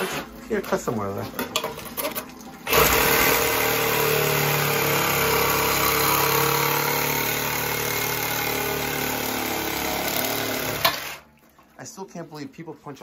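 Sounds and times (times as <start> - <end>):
reciprocating saw cutting iron pipe: 2.7 - 11.2.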